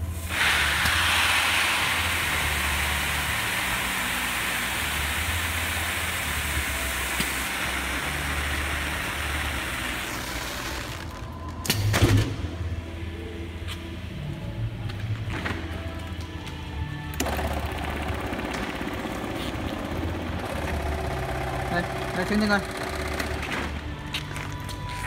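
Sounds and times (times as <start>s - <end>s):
rice grain pouring: 0.0s - 11.2s
low machine hum: 0.0s - 25.0s.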